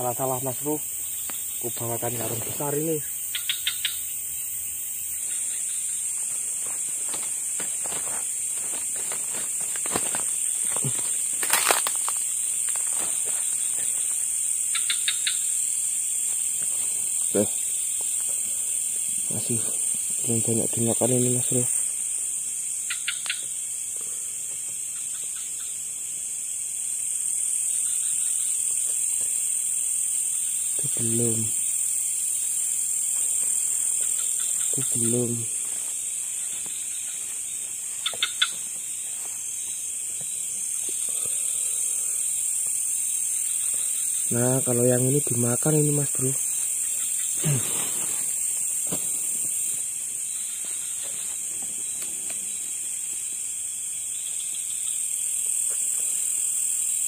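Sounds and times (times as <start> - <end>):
crickets buzzing: 0.0 - 57.0
night insects chorus: 0.0 - 57.0.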